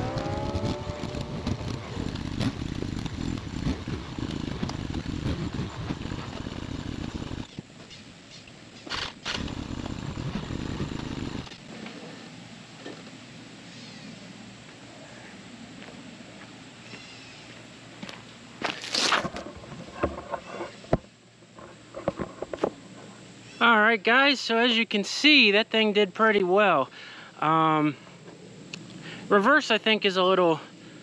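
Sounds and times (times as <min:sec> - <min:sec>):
quad bike engine running: 0:00.0 - 0:07.6, 0:08.9 - 0:11.8.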